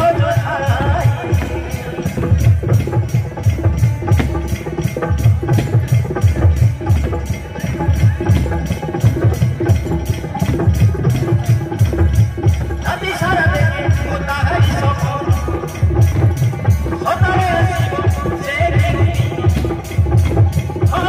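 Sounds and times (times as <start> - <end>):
folk dance drums and percussion: 0.0 - 21.0.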